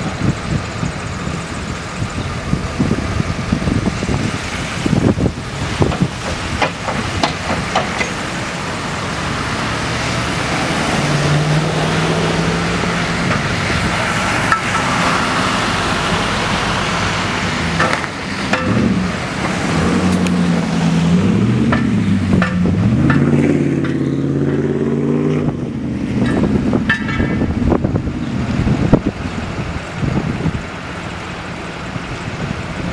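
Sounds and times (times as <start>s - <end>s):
vehicle engines: 0.0s - 32.9s
tyre hiss on wet road: 0.3s - 21.4s
sharp clicks and knocks: 5.8s - 8.4s, 17.8s - 20.4s, 21.6s - 24.1s, 26.2s - 27.5s.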